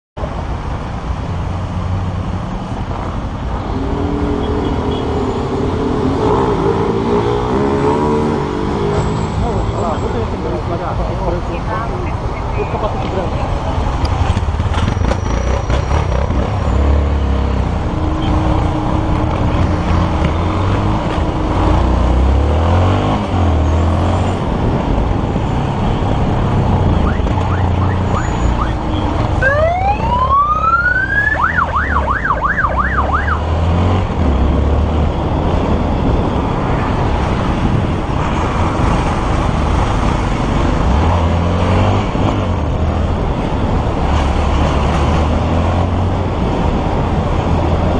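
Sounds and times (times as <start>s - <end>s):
motorcycle engine and road noise: 0.2s - 47.9s
police siren: 27.0s - 33.5s.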